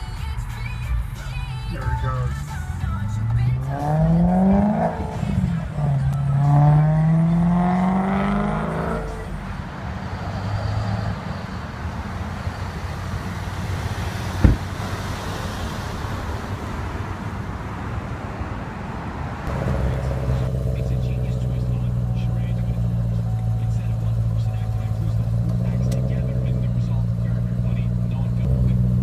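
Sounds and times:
car engine accelerating: 0.0s - 29.0s
steady traffic hum: 0.0s - 29.0s
sharp knock: 14.4s - 14.7s.

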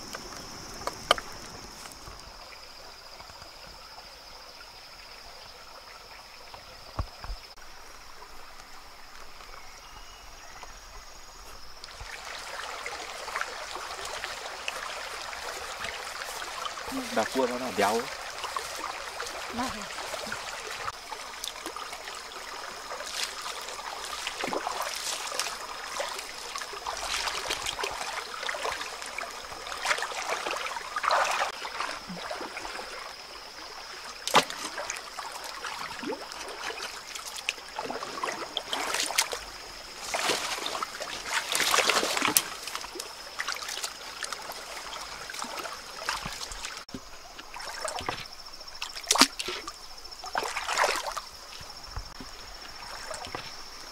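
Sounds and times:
stream trickling: 0.0s - 53.9s
sudden water splashes: 11.6s - 53.9s.

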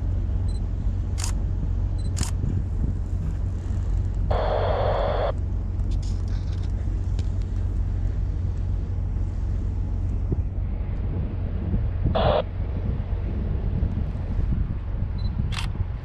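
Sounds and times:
ship machinery humming: 0.0s - 16.0s
higher-pitched noise: 4.3s - 5.3s.

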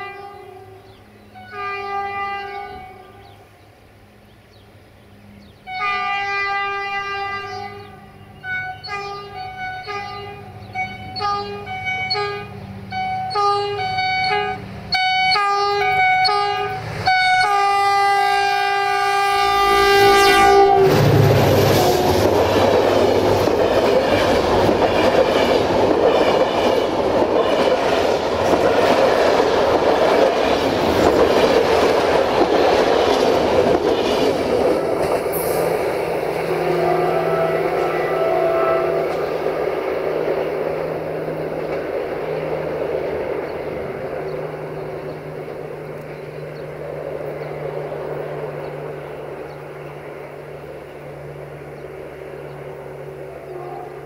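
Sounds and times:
locomotive air horn: 0.0s - 3.2s, 5.6s - 22.7s, 34.6s - 39.8s, 53.4s - 54.0s
train rumbling past: 0.0s - 54.0s
wheel clatter on rails: 20.9s - 35.8s.

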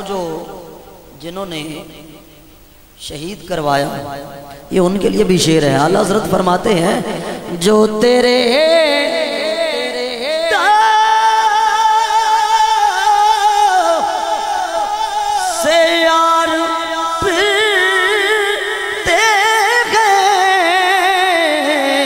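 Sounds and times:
man singing into a microphone: 3.1s - 22.0s.

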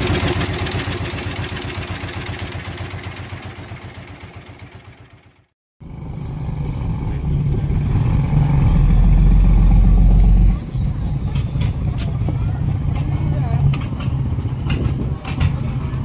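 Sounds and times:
small boat engine chugging: 0.0s - 8.0s
low rumble: 5.8s - 16.0s.

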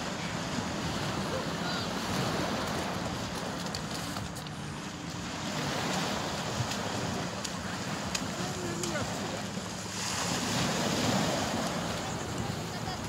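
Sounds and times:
waves washing onto pebbles: 0.0s - 4.3s, 4.9s - 13.0s
faint clicks: 7.4s - 9.0s.

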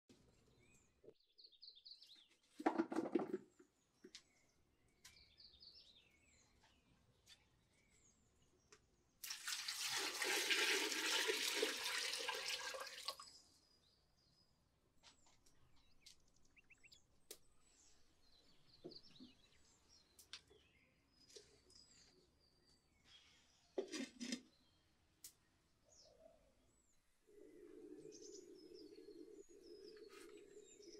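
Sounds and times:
water pouring into a pot: 9.2s - 13.3s
birds chirping: 13.2s - 23.8s, 24.4s - 30.9s.

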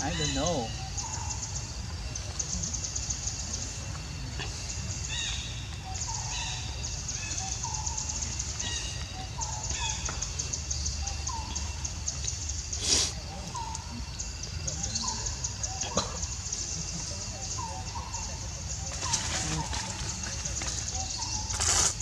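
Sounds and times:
insects trilling: 0.0s - 22.0s.

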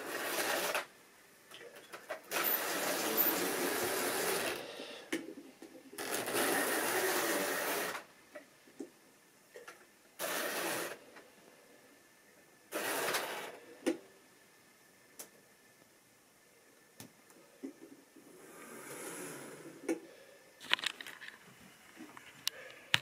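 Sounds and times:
model train motor whirring: 0.0s - 0.9s, 2.3s - 4.6s, 6.0s - 8.1s, 10.2s - 11.0s, 12.7s - 13.5s.

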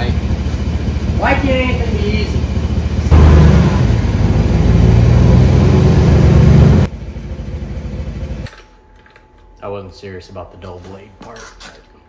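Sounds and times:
loud truck engine running: 0.0s - 8.5s.

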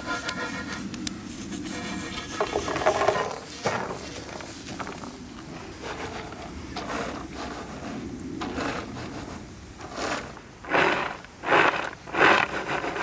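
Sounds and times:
nuts rattling on wooden board: 2.3s - 5.2s, 9.9s - 13.0s.

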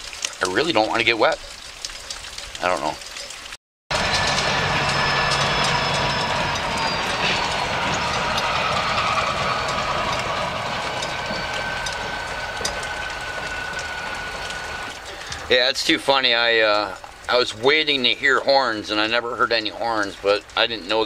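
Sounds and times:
distant train wheels clattering: 3.9s - 15.5s
thin steady squeal: 3.9s - 15.6s.

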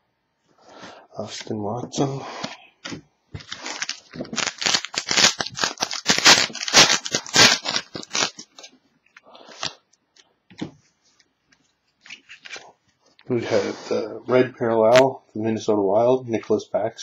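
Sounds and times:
wrapper crinkling and tearing: 3.4s - 8.8s, 9.4s - 9.8s, 12.0s - 12.7s.

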